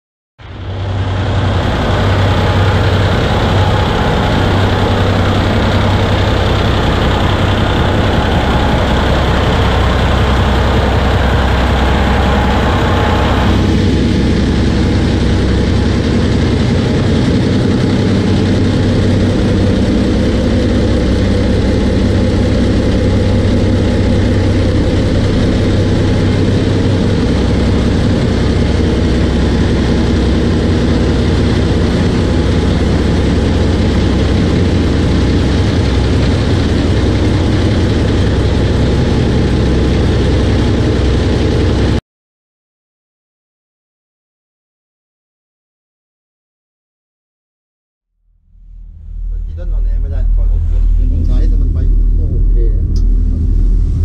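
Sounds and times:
diesel engines idling: 0.4 - 42.0.

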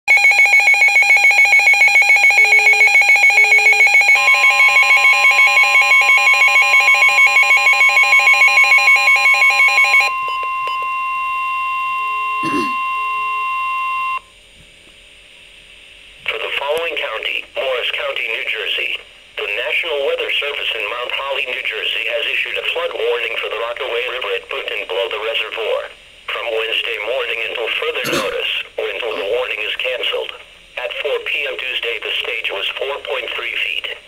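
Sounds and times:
fast pulsing alarm beeps: 0.1 - 14.2
steady warning tone: 0.1 - 14.3.

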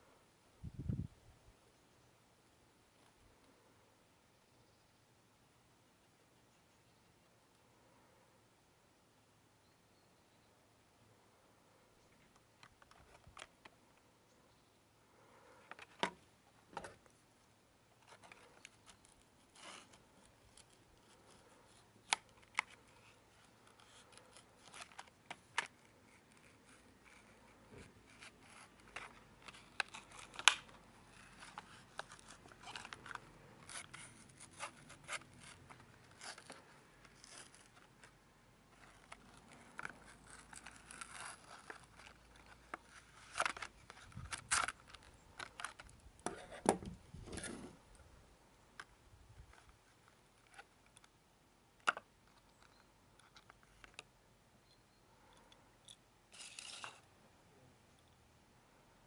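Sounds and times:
plastic crackling: 18.0 - 47.7.

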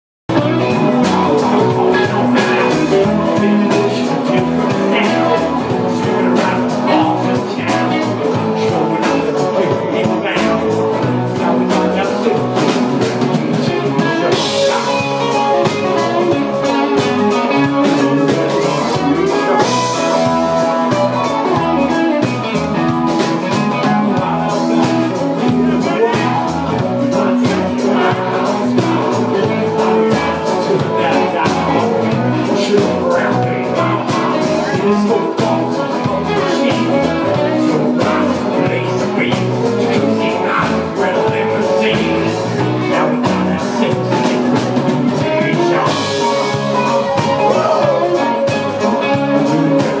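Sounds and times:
drum kit beat: 0.3 - 50.0
live band playing: 0.3 - 50.0
man singing into a microphone: 0.3 - 50.0.

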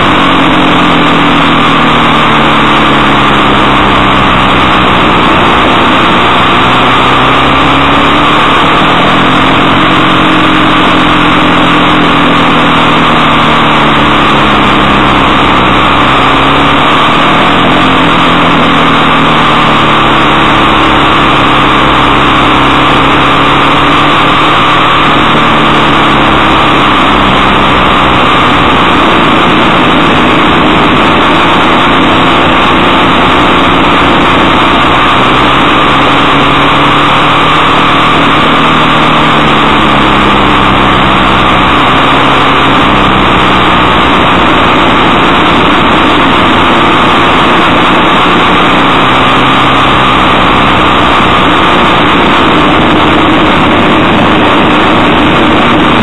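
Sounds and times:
motorcycle engine running: 0.0 - 56.0
wind noise on microphone: 0.0 - 56.0.

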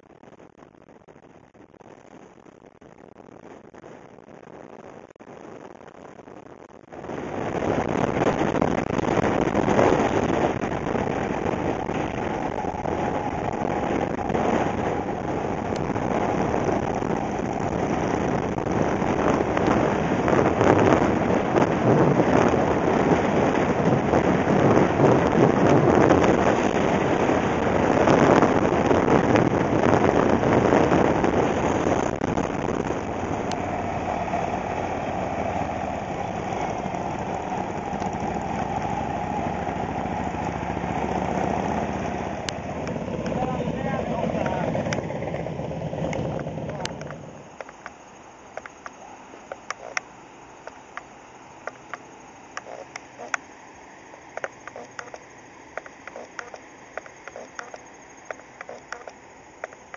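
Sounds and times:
wind rushing over microphone: 0.0 - 59.9
motorcycle engine running: 7.4 - 47.4, 55.8 - 59.9.

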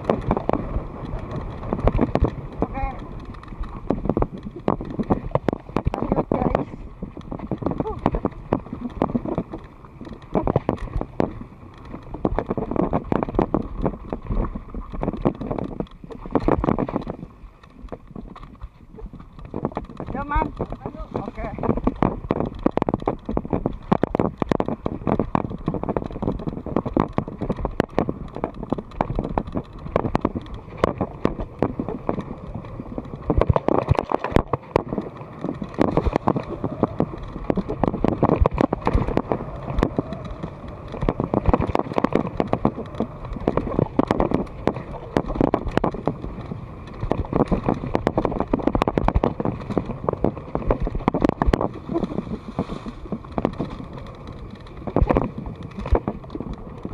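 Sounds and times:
bike rattling over bumps: 0.0 - 56.9.

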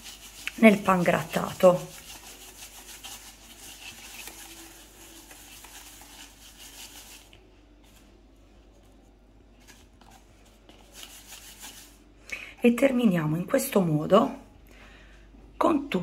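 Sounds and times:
breadcrumbs rustling and scraping: 0.0 - 12.0.

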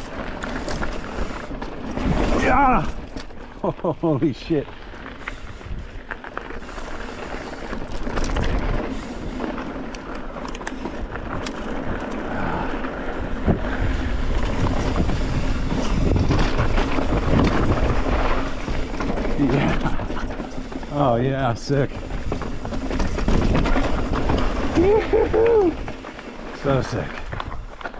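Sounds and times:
wind buffeting microphone: 5.2 - 9.6, 11.0 - 27.8.

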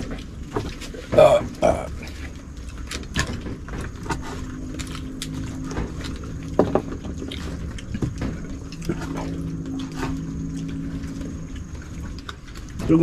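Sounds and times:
steady low drone: 3.7 - 12.9.

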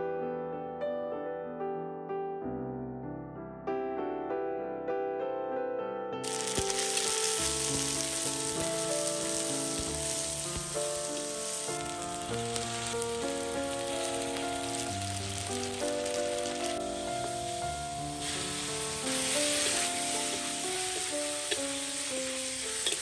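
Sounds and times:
soft piano music: 0.0 - 23.0
paste sizzling in a wok: 6.3 - 23.0.

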